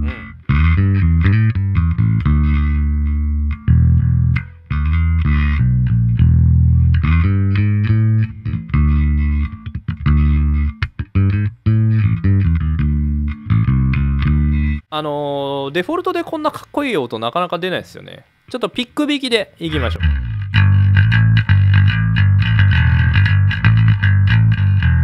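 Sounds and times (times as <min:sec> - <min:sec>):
electric bass played fingerstyle: 0:00.0 - 0:14.9, 0:19.7 - 0:25.0.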